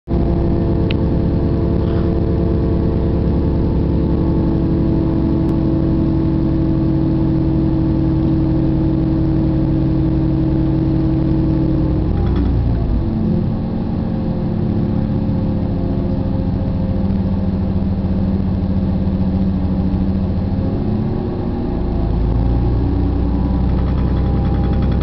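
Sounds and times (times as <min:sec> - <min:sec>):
diesel engine drone: 0:00.1 - 0:25.0
low rumble of moving train: 0:00.1 - 0:25.0.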